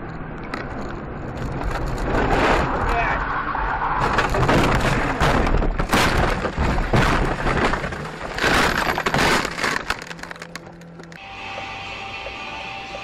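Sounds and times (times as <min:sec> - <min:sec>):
car crashing and crunching: 0:03.9 - 0:10.8.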